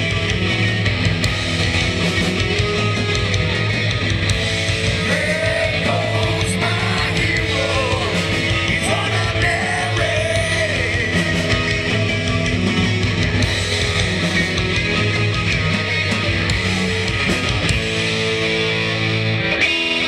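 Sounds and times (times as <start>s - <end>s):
live rock band playing: 0.0s - 20.0s
person singing: 5.0s - 11.3s.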